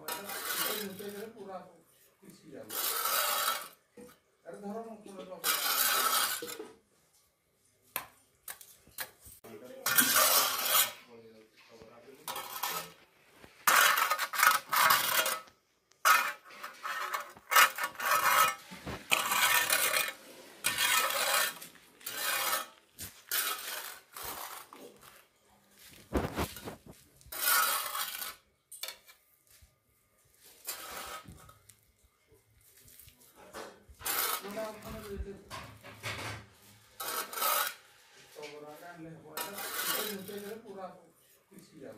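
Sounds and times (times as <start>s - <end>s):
trowel scraping sand on concrete: 0.0s - 1.4s, 2.6s - 3.8s, 5.4s - 6.7s, 9.7s - 11.0s, 12.1s - 25.2s, 25.8s - 29.6s, 30.3s - 31.8s, 33.9s - 35.3s, 36.6s - 40.7s.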